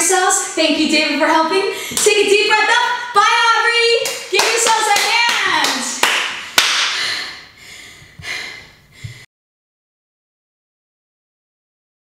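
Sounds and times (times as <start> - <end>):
sharp hand claps: 4.0 - 7.0.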